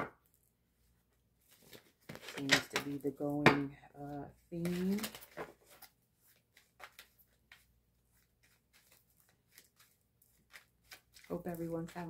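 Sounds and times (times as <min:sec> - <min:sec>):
cards being shuffled: 0:01.4 - 0:03.2, 0:04.3 - 0:12.0.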